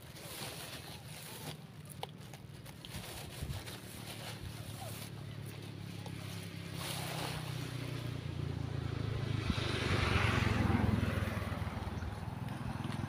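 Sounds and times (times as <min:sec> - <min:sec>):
vehicle driving past: 0:05.7 - 0:13.0.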